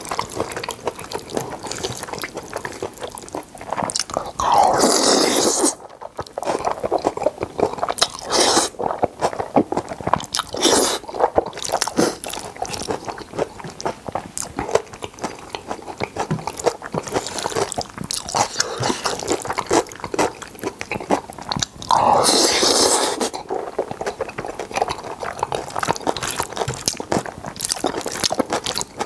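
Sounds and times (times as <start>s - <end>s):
wet smacking chewing: 0.0s - 29.0s
slurping noodles: 3.7s - 13.1s, 21.1s - 28.9s.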